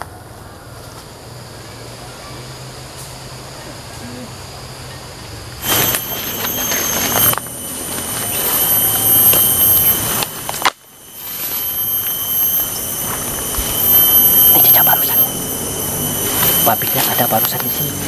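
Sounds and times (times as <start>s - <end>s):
high-pitched insect drone: 0.0s - 18.0s.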